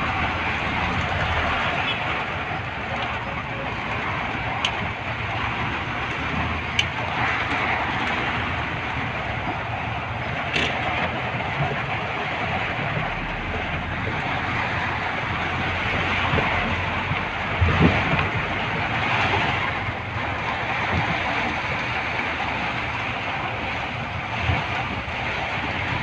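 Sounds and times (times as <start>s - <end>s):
engine and road rumble: 0.0s - 26.0s
heavy rain on vehicle roof: 0.0s - 26.0s.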